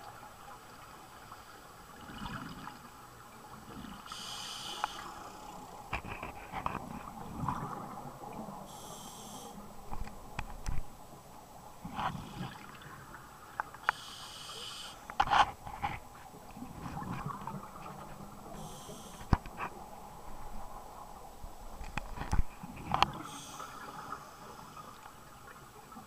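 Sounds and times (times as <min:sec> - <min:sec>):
regulator hissing inhale: 0:04.1 - 0:05.6, 0:08.7 - 0:09.6, 0:13.8 - 0:15.1, 0:18.6 - 0:19.3, 0:23.2 - 0:25.0.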